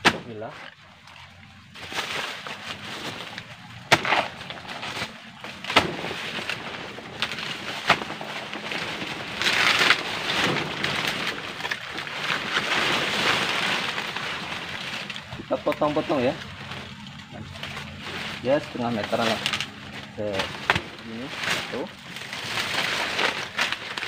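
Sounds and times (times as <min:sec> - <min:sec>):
machete chopping plant trunk: 0:00.0 - 0:00.7, 0:03.8 - 0:06.6, 0:07.2 - 0:08.5, 0:20.3 - 0:21.8
rustling dry leaves: 0:00.0 - 0:24.0.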